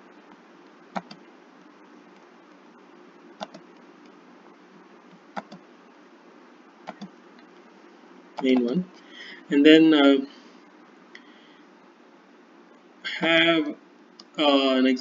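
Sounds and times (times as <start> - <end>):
microphone background hum: 0.0 - 11.9
computer mouse clicking: 0.9 - 1.2, 3.4 - 4.2, 5.1 - 5.6, 6.8 - 7.2.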